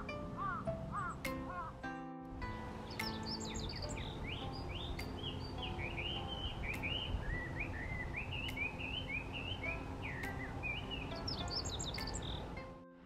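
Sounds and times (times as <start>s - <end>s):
bird singing whistled notes: 2.8s - 12.6s.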